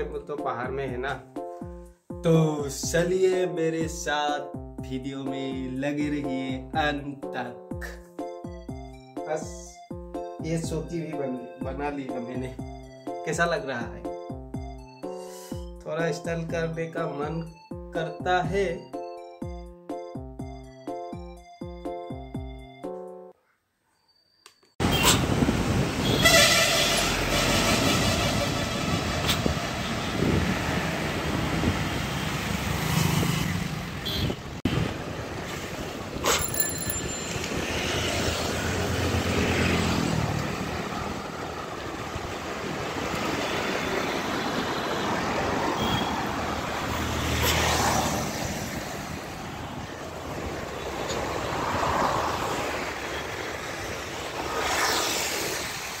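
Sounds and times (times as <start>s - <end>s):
tyre and traffic noise: 24.4s - 56.0s
bus passing: 24.8s - 56.0s
motorbikes passing: 24.8s - 56.0s.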